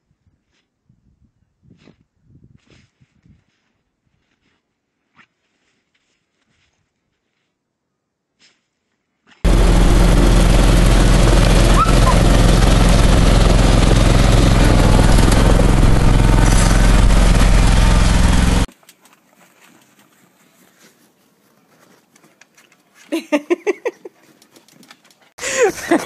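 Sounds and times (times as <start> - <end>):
snow blower engine running: 9.5 - 18.7.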